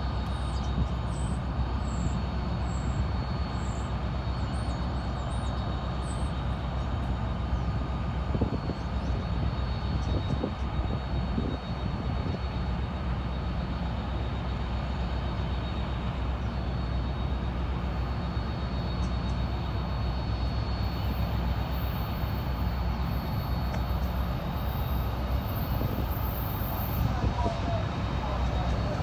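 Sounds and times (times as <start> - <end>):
diesel locomotive engine rumbling: 0.0 - 29.0.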